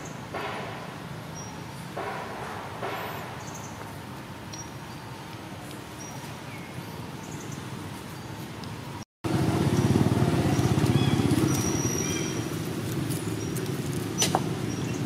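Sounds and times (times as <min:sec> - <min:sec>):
low engine running steadily: 0:09.3 - 0:13.7.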